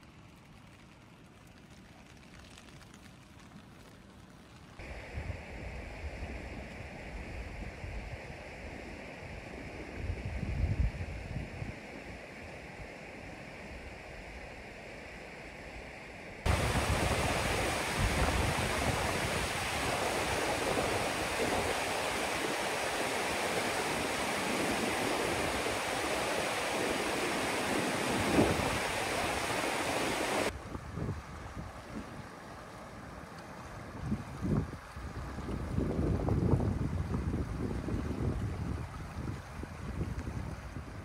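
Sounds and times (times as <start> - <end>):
wind on microphone: 4.8 - 14.6, 16.4 - 32.3, 33.9 - 41.0
river rushing over rocks: 16.5 - 30.5.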